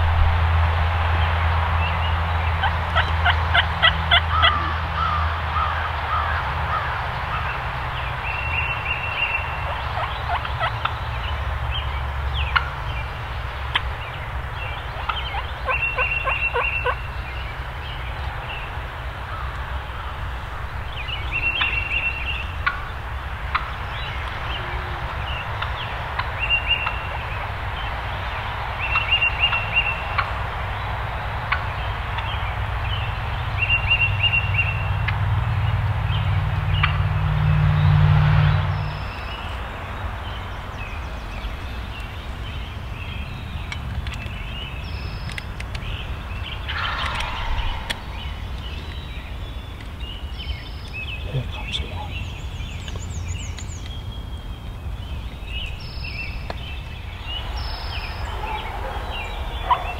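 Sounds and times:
turkey gobbling: 2.6 - 7.4, 9.3 - 11.0, 12.5 - 12.8, 13.7 - 17.1, 21.5 - 24.8, 46.6 - 49.0, 58.3 - 59.9.

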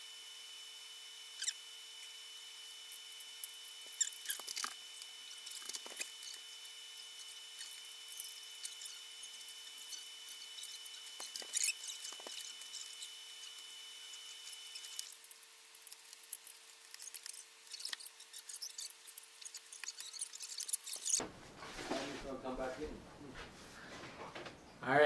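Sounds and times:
screwdriver and screws rattling on plastic: 7.6 - 13.6.

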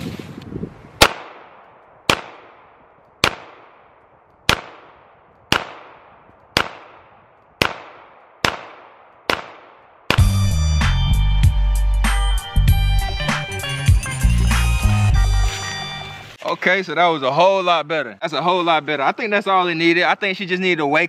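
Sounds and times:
pistol shots with echo: 1.0 - 10.4
music: 10.2 - 16.4.

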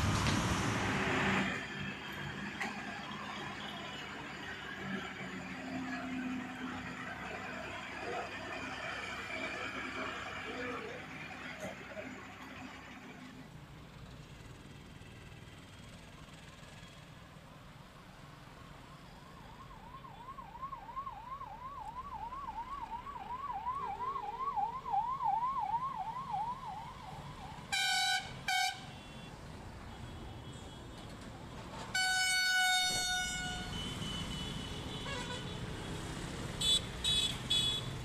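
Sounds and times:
road traffic: 0.0 - 38.0
siren sweeping up and down: 19.4 - 28.2
car horn honks: 27.7 - 29.3, 31.9 - 35.6, 36.6 - 38.0.

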